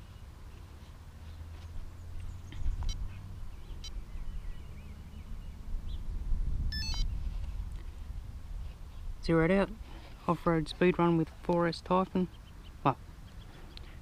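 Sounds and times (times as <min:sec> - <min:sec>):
wind rumble on microphone: 0:01.7 - 0:11.2
short high electronic beep: 0:06.7 - 0:07.1
device button clicks: 0:06.8 - 0:07.0.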